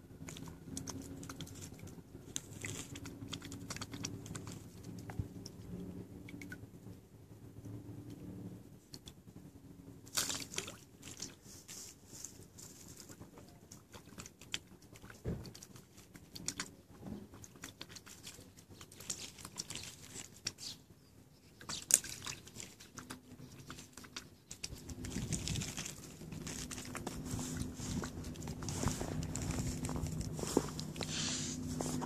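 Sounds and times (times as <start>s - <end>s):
swan dabbling in water: 0.0s - 6.6s, 10.0s - 20.8s, 21.4s - 32.0s
rustle: 10.0s - 20.9s, 21.6s - 32.0s.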